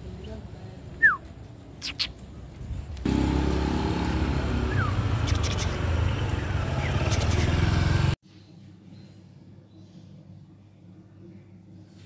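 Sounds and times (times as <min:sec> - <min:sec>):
street traffic engine hum: 0:00.0 - 0:08.2.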